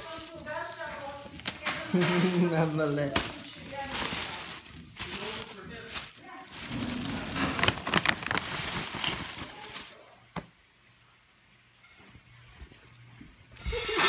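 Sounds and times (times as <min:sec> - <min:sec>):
plastic packaging crinkling: 0:00.0 - 0:10.2.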